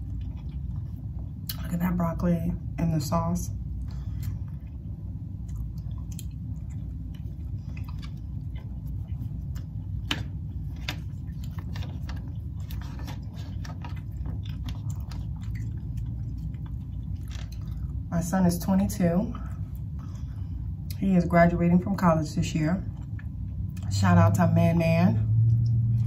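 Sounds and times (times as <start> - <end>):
person chewing: 0.0 - 1.7, 3.6 - 18.1, 22.9 - 23.9
steady low hum: 0.0 - 26.0.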